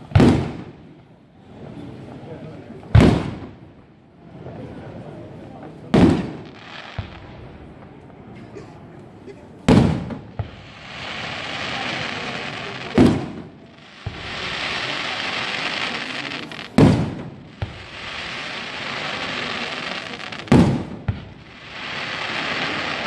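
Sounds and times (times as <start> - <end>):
firework shells booming: 0.0 - 0.8, 2.9 - 3.6, 5.8 - 7.9, 9.7 - 23.0
firework crackling hiss: 5.8 - 8.0, 9.7 - 23.0.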